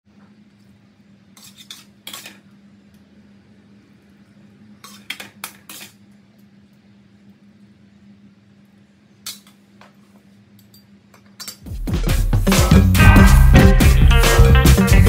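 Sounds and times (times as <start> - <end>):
steady low hum: 11.7 - 15.0.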